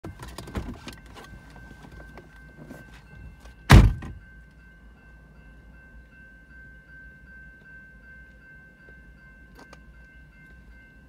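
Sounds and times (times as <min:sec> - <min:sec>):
railroad crossing bell ringing: 0:00.1 - 0:11.0
loud thunk: 0:03.7 - 0:04.2.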